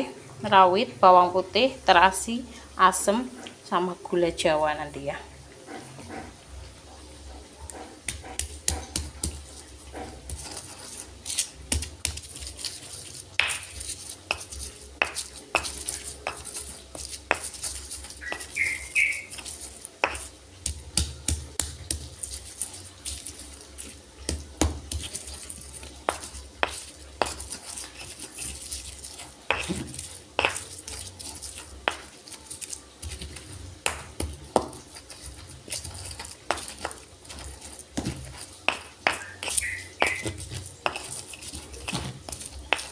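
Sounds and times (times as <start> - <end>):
stone scraping and grinding: 10.0 - 20.4, 24.6 - 42.9
stone pestle knocking in mortar: 13.4 - 22.1, 24.3 - 25.2, 26.1 - 28.1, 29.5 - 31.0, 31.8 - 32.1, 33.0 - 34.9, 35.8 - 42.9.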